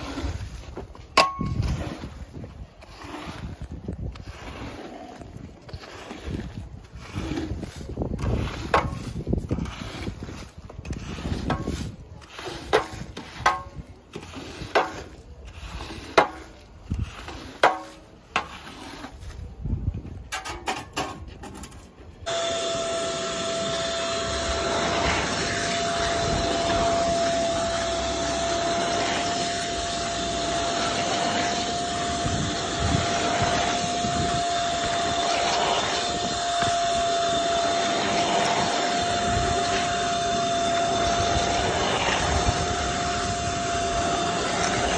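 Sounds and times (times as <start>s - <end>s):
squeegee scraping wet rug: 0.0s - 19.9s, 22.2s - 44.9s
wet vacuum whining: 22.2s - 44.9s.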